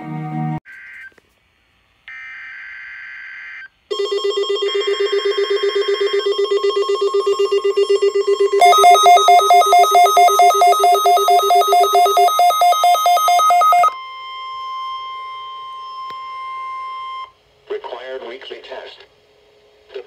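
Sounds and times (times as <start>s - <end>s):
pulsing electronic alert tone: 5.7s - 14.0s
digital header tones: 7.2s - 14.0s.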